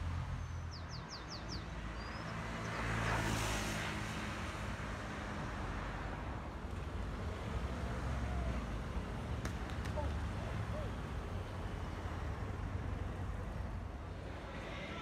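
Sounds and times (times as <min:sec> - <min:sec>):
vehicle passing by: 0:07.0 - 0:13.6.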